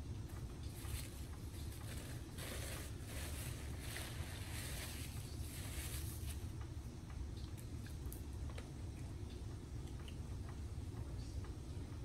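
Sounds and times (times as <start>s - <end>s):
paper napkin rustling: 0.8s - 6.5s.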